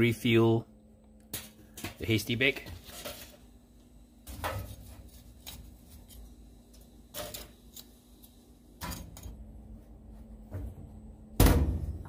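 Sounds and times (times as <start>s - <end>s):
metal tongs clinking charcoal: 7.1s - 7.9s.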